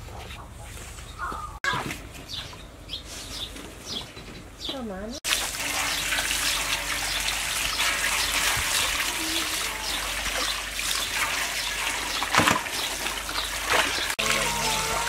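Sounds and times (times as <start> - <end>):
hose water running into basin: 5.2 - 15.0
water splashing: 5.2 - 15.0.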